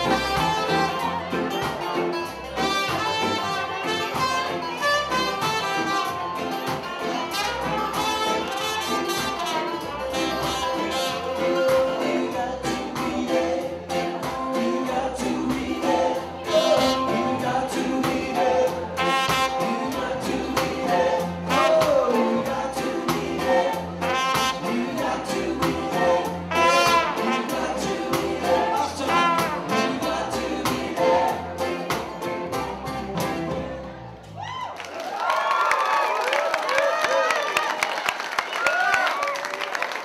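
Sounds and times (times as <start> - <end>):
live band playing: 0.0 - 34.5
man singing with vibrato: 7.0 - 33.8.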